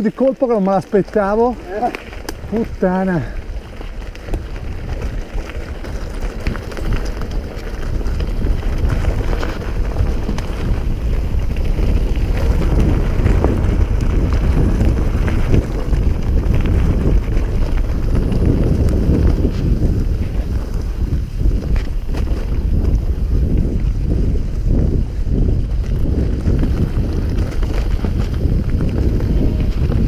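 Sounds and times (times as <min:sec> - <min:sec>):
bike rattling over bumps: 0:00.0 - 0:30.0
tyres rolling over dirt and leaves: 0:00.0 - 0:30.0
wind rumbling on microphone: 0:00.0 - 0:30.0.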